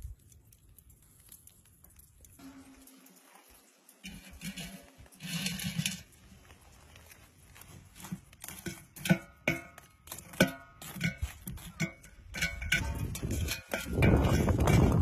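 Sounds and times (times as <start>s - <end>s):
scraping of coals and dirt: 0.0s - 15.0s
knocks and clinks on metal pot: 8.6s - 15.0s.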